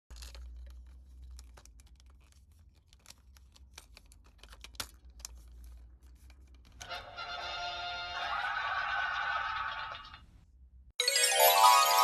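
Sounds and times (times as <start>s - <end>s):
plastic toy parts clicking: 0.1s - 6.8s.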